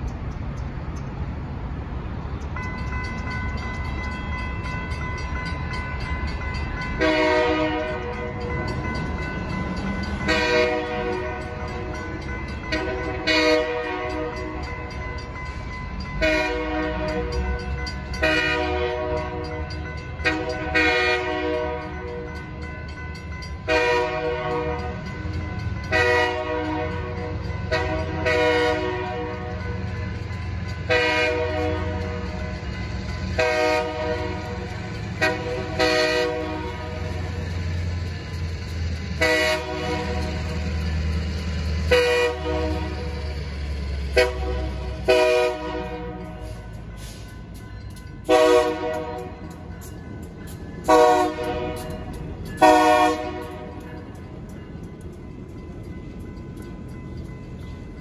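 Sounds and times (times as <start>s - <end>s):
crossing warning bell ringing: 0.0s - 58.0s
train horn blasts: 7.0s - 8.3s, 10.2s - 11.5s, 12.7s - 14.6s, 16.2s - 17.4s, 18.2s - 22.2s, 23.6s - 25.1s, 25.9s - 29.7s, 30.8s - 32.4s, 33.3s - 37.4s, 39.2s - 40.5s, 41.8s - 43.2s, 44.1s - 46.6s, 48.3s - 49.6s, 50.9s - 53.8s.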